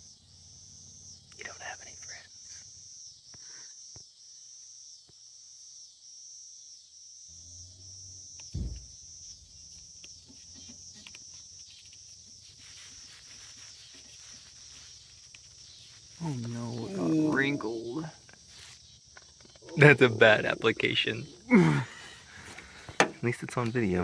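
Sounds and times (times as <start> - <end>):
insect chorus: 0.0 - 24.0
single thump: 8.5 - 9.0, 22.9 - 23.2.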